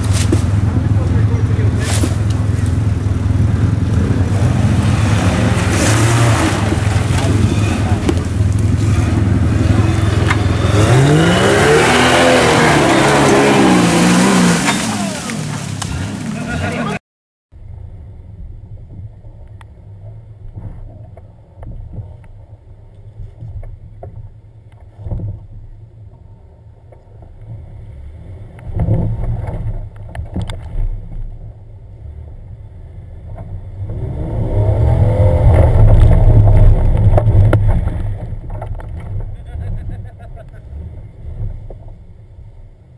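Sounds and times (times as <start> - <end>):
off-road vehicle engine revving: 0.0 - 17.0, 27.4 - 42.6.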